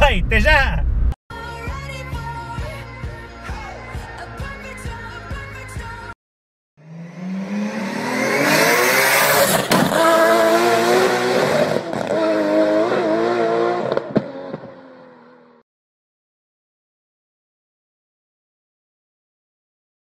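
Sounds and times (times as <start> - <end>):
car engine revving: 6.8 - 15.6.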